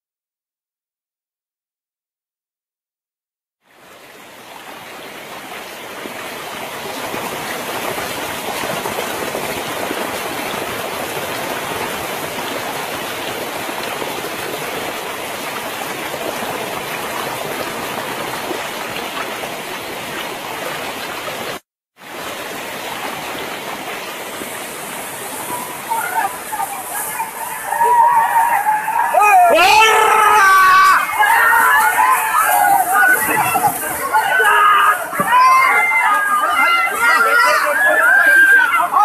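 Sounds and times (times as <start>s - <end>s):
floodwater rushing: 3.6s - 39.0s.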